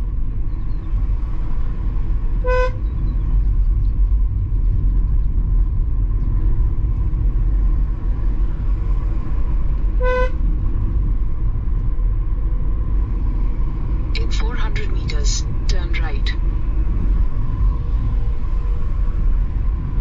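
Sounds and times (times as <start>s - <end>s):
engine and road rumble: 0.0s - 20.0s
car horn toots: 2.4s - 2.8s, 10.0s - 10.4s.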